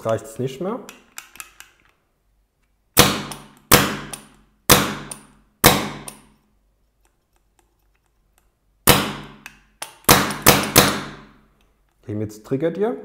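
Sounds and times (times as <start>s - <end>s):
paintball marker dry-firing pops: 8.9s - 11.3s.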